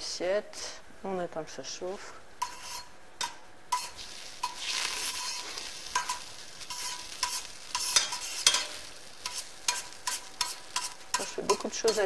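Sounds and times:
oil sizzling in pot: 2.4s - 12.0s
utensil scraping pot: 2.4s - 12.0s.

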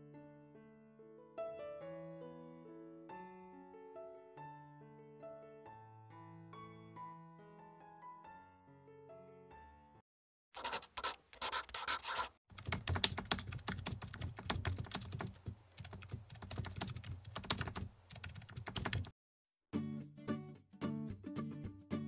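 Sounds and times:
computer keyboard typing: 10.6s - 19.1s.

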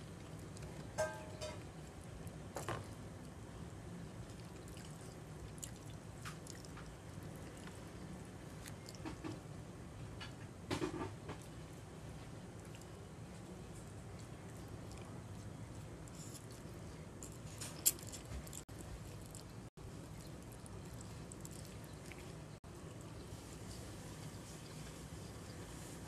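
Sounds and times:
low room hum: 0.0s - 26.0s
chewing and mouth noises: 4.2s - 9.4s, 11.3s - 23.2s.

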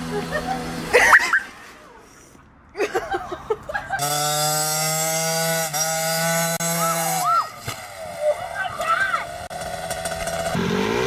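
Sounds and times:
mini dirt bike engine revving: 0.0s - 2.0s, 3.9s - 11.0s.

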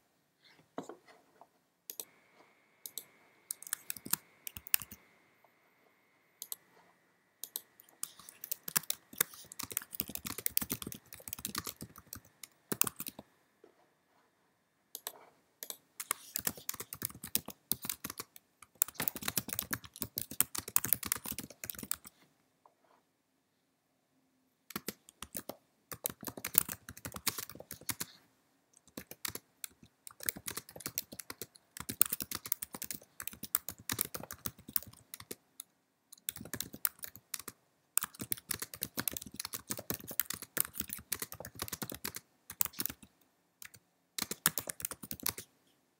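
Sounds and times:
typing on computer keyboard: 2.9s - 5.0s, 7.4s - 13.2s, 15.0s - 22.1s, 24.7s - 28.2s, 28.8s - 35.4s, 36.1s - 45.5s.

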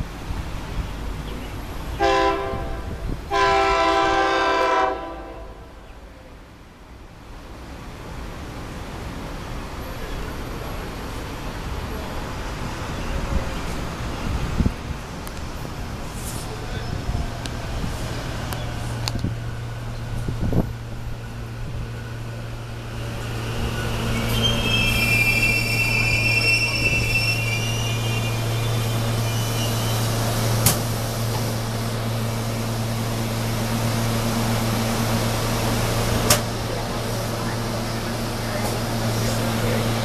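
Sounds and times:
electric train braking: 22.2s - 32.9s
high squeal of brakes: 23.0s - 30.4s.

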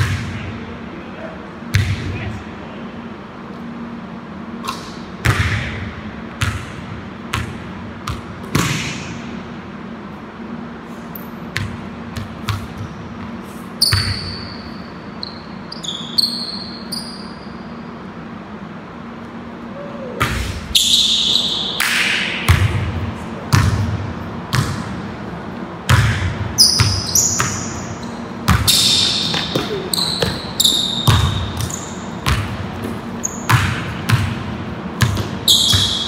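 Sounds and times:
sneaker squeaks: 11.1s - 18.1s, 20.2s - 21.9s, 26.6s - 34.4s, 35.0s - 36.0s
basketball bouncing on hardwood: 31.0s - 36.0s.

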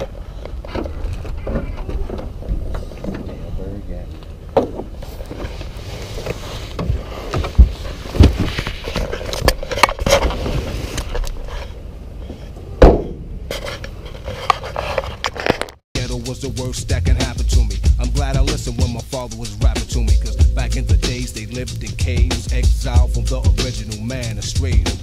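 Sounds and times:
rustling and scraping: 0.0s - 12.6s, 13.4s - 15.8s
sharp knocks and thumps: 6.8s - 8.8s.

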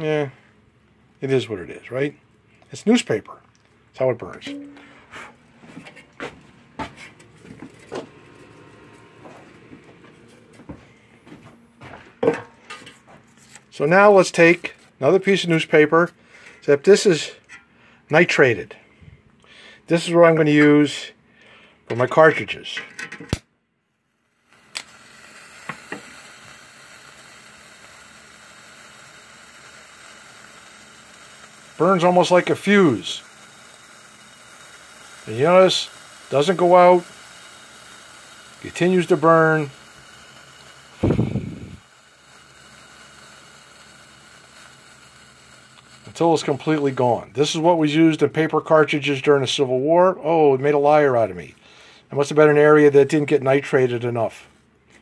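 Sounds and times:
smouldering paper hissing: 6.3s - 11.4s, 24.4s - 49.2s.

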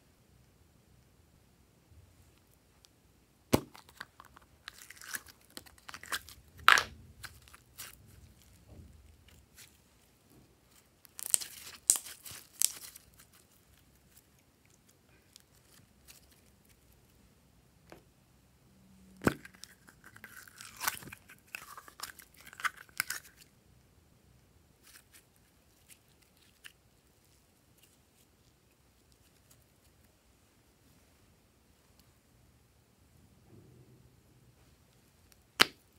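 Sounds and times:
slime squelching and crackling: 3.5s - 16.8s.

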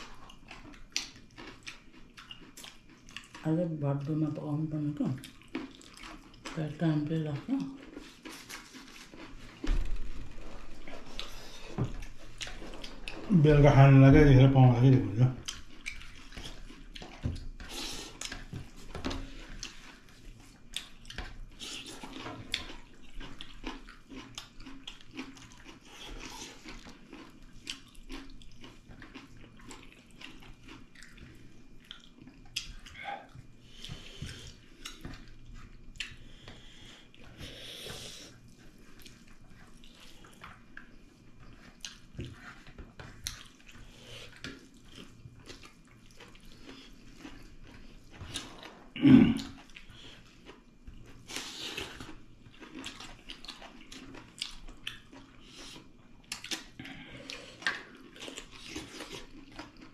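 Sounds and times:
wet chewing and smacking: 0.0s - 13.3s, 14.6s - 59.9s.

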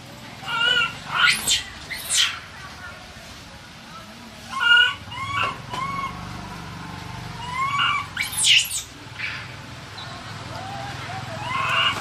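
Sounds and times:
monkey harsh scream: 0.4s - 2.5s, 4.5s - 6.2s, 7.4s - 9.5s, 11.4s - 12.0s
monkey whimpering coos: 4.5s - 6.1s, 7.4s - 8.8s, 10.6s - 12.0s.

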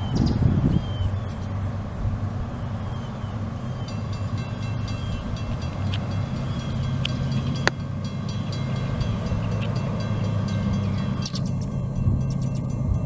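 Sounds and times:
diesel locomotive rumble: 0.0s - 13.0s.

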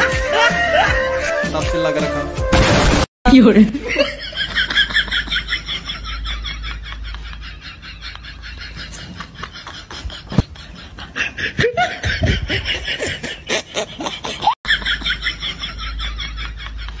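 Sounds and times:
boy giggling: 6.8s - 17.0s.

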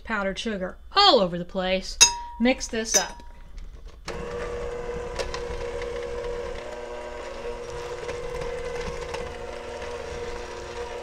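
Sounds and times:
electric hand mixer running: 4.1s - 11.0s.

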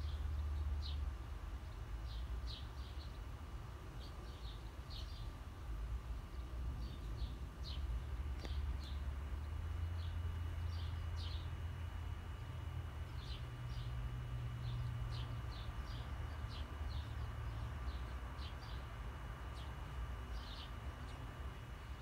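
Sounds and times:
birds chirping: 4.0s - 5.4s, 6.2s - 22.0s.

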